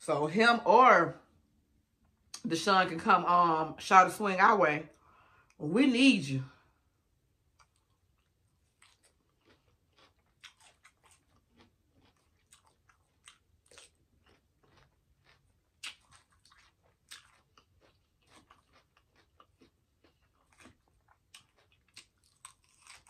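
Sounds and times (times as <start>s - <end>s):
crunchy chewing: 7.5s - 23.0s.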